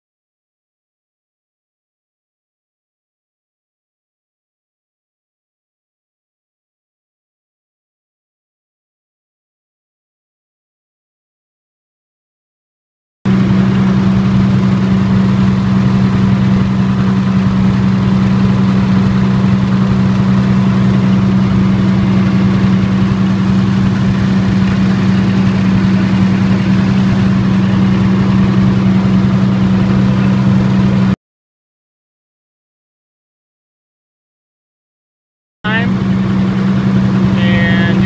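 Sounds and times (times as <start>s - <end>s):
diesel generator droning: 13.3s - 31.2s, 35.7s - 38.0s.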